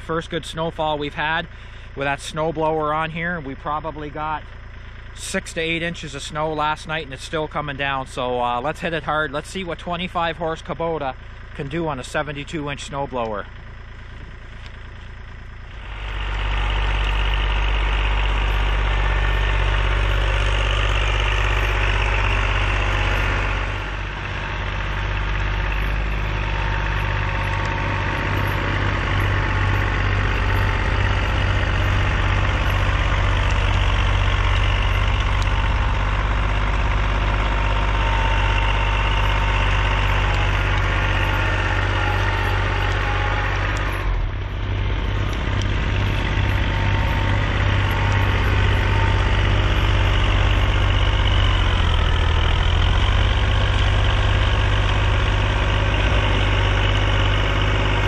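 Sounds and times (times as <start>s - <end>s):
tractor diesel engine running: 0.0s - 58.0s
snow blower rushing: 15.6s - 58.0s.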